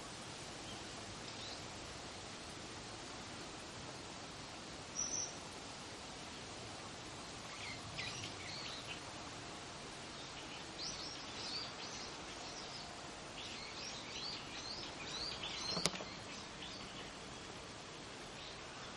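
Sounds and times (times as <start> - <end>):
steady outdoor hiss: 0.0 - 18.9
small birds chirping: 4.8 - 5.6, 7.2 - 18.9
sharp click: 15.6 - 16.2.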